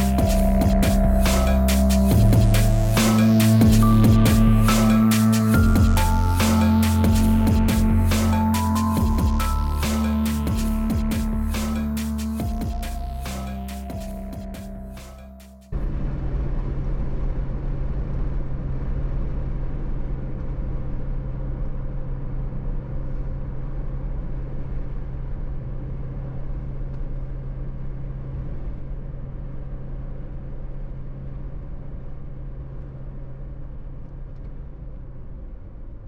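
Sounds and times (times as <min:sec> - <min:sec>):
car engine and tyre drone: 0:00.0 - 0:36.0.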